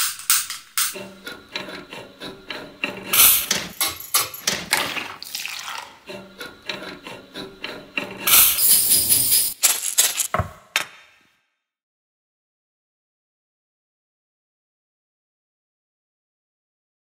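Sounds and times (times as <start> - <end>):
rhythmic clicks and knocks: 0.0 - 4.9
grains rattling in glass jar: 8.5 - 10.3.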